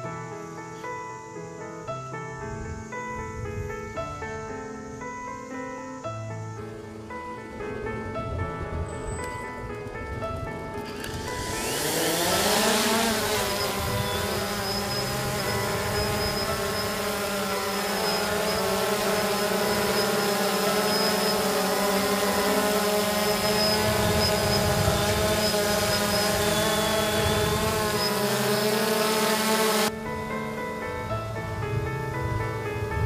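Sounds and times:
quadcopter propellers buzzing: 10.6 - 30.0.

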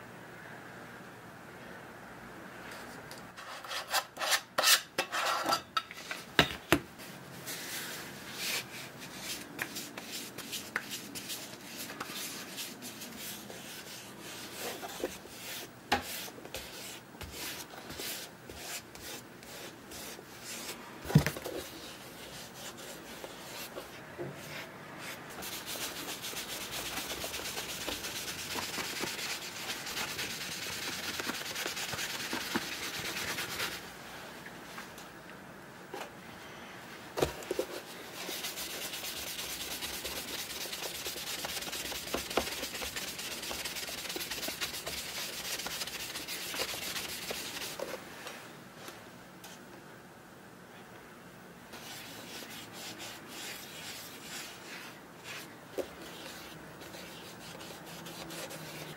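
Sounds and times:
cloth rubbing polish on leather shoe: 38.2 - 47.8.

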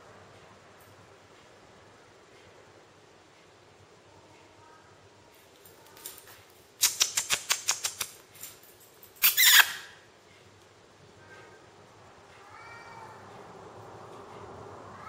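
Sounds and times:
sharp rustling clicks: 5.6 - 9.9.

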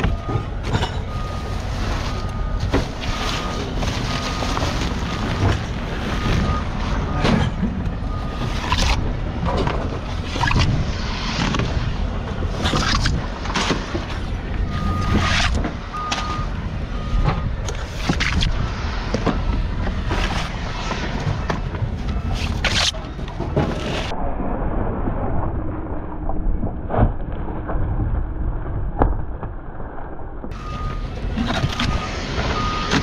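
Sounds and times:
reversing alarm beeping: 0.0 - 9.0, 14.6 - 17.6, 19.2 - 19.6, 22.0 - 22.6, 30.5 - 33.0
debris thumping and clattering: 0.0 - 16.5
heavy machinery rumbling: 0.0 - 33.0.

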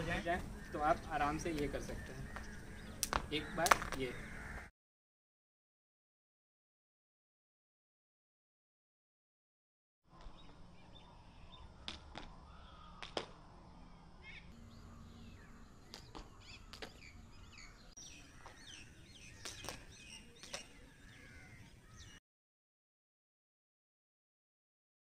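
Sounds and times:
birds chirping: 0.0 - 4.7, 10.1 - 22.2
jump rope slapping ground: 2.4 - 4.0, 19.4 - 20.8.

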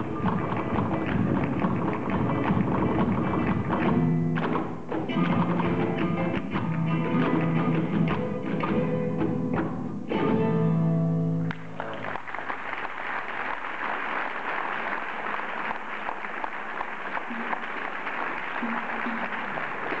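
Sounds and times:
audience applauding: 0.0 - 3.8, 11.5 - 20.0.

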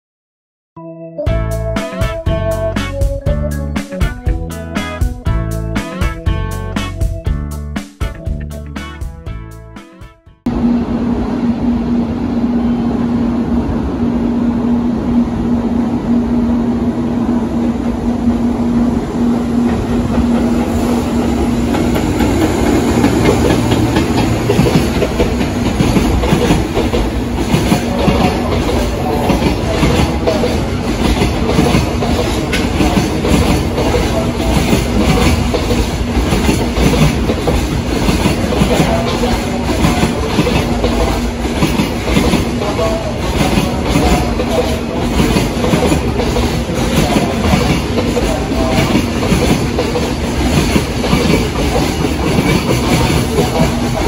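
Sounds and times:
freight train passing: 10.4 - 54.0
wheels clacking over rail joints: 19.6 - 54.0.

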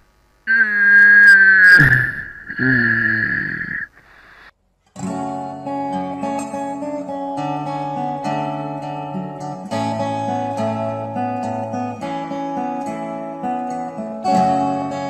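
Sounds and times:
fingerpicked acoustic guitar: 4.7 - 15.0.

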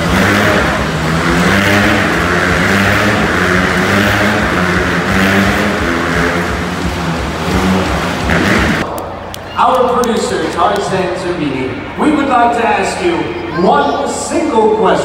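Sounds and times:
motorcycle engines running: 0.0 - 8.9.

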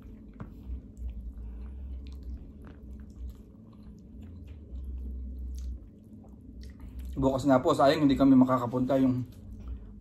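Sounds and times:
chewing with mouth clicks: 0.0 - 7.2
low steady hum: 0.0 - 10.0.

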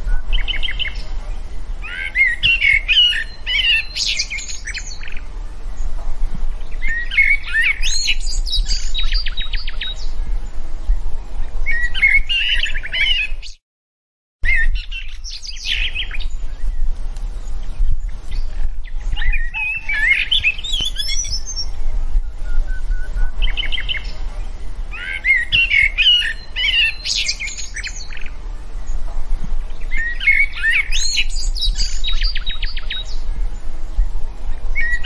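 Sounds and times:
steady low rumble: 0.0 - 12.1, 27.3 - 35.0
songbirds chirping and warbling: 0.0 - 13.6, 14.4 - 35.0.

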